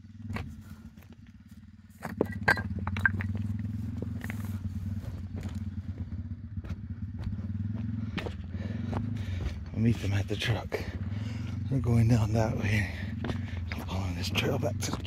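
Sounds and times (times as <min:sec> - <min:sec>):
low engine-like hum: 0:00.0 - 0:15.0
footsteps through dry brush: 0:03.6 - 0:10.2.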